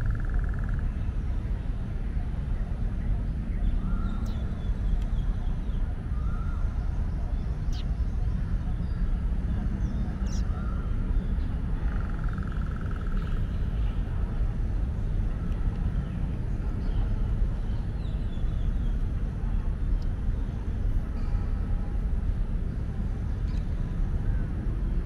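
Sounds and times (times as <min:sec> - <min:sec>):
low outdoor rumble: 0:00.0 - 0:25.0
faint bird chirps: 0:02.6 - 0:09.1.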